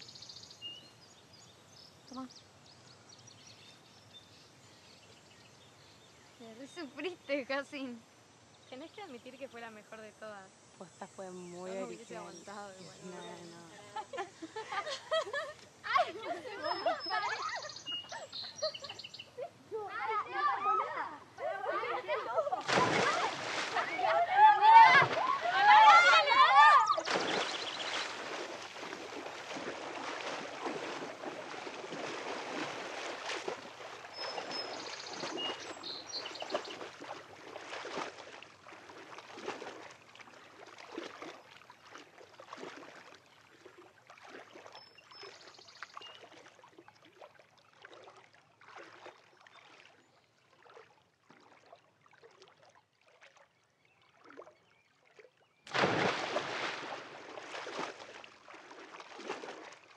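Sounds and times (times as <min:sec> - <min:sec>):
pool water sloshing and lapping: 0:00.0 - 0:59.9.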